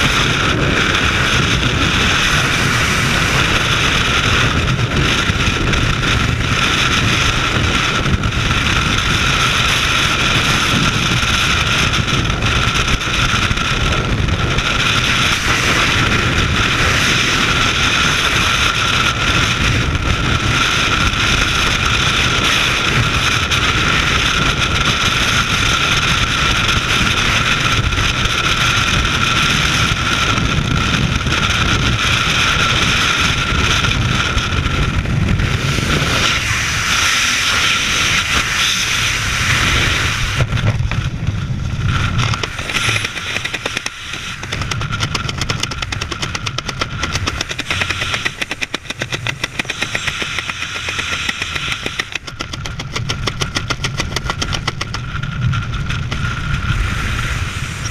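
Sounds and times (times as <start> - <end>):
wind rushing over microphone: 0.0 - 57.9.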